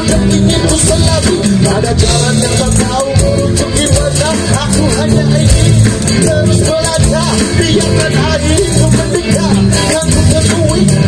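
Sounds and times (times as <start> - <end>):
live band music: 0.0 - 11.0
person singing: 0.0 - 11.0.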